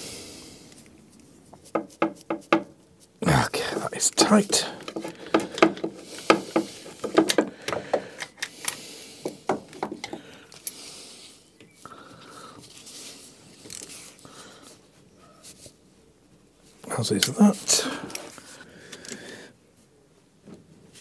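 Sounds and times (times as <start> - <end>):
tool handling: 4.1 - 10.8.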